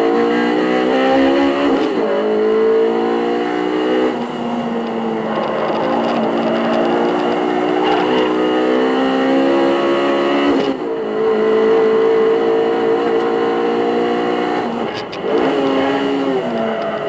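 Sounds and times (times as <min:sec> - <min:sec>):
car engine pulling hard: 0:00.0 - 0:17.0.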